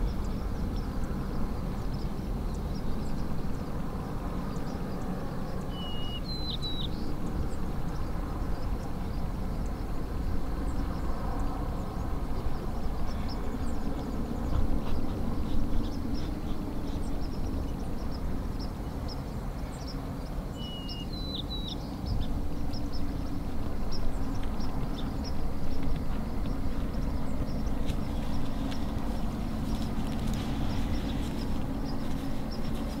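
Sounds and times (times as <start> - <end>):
low outdoor rumble: 0.0 - 33.0
small birds chirping: 0.0 - 33.0
whistled bird call: 20.6 - 21.8.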